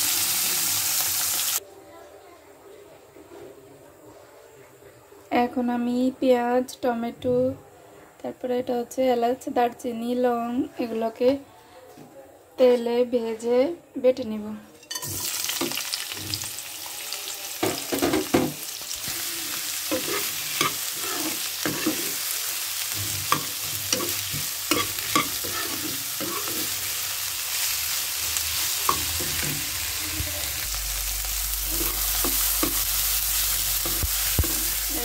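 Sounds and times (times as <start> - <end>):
vegetables sizzling in hot oil: 0.0 - 1.6, 14.9 - 35.0
metal ladle scraping a pan: 19.0 - 26.9.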